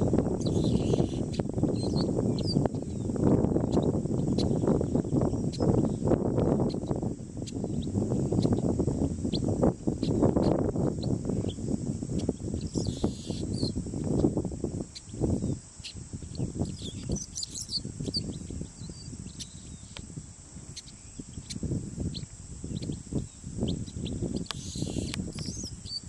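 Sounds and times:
bird chirping: 0.0 - 20.0, 20.7 - 26.0
low gusty rumble: 0.0 - 25.9
steady high hiss: 0.0 - 26.0.

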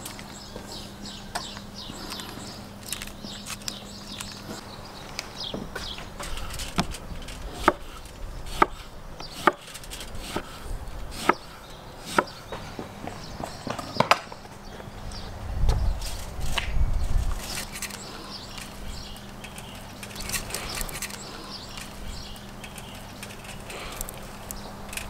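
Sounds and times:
aluminium foil crinkling: 6.2 - 8.3, 9.6 - 10.2, 17.2 - 25.0.

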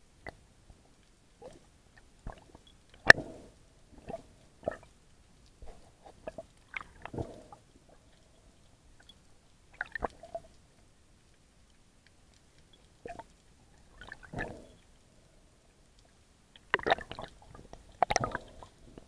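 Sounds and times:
underwater clicks and knocks: 16.6 - 19.0.

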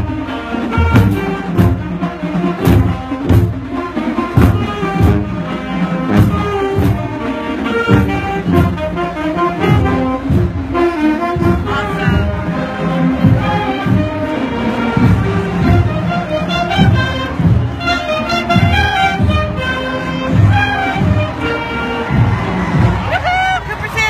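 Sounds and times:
marching band brass: 0.0 - 24.0
bass drum beat: 4.4 - 7.2, 7.9 - 23.6.

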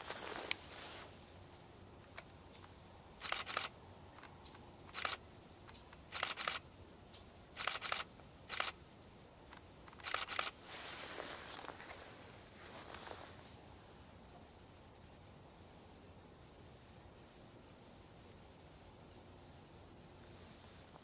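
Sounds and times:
soft scraping: 0.0 - 1.6, 9.9 - 13.5
woodpecker pecking wood: 2.2 - 6.7, 7.5 - 8.8.

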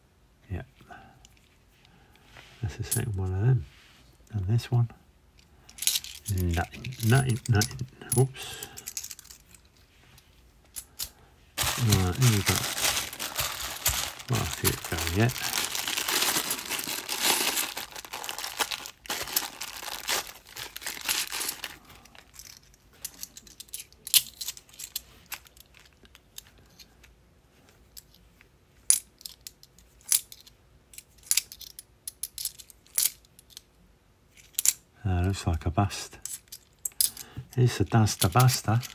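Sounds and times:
plastic bag crinkling: 11.6 - 22.6.

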